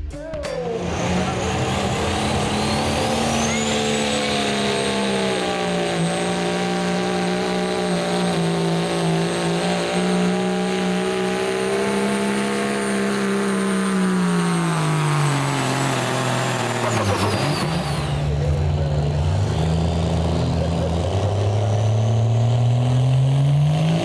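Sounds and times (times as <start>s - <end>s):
diesel truck engine under load: 0.5s - 24.0s
high turbo whistle: 1.1s - 6.3s.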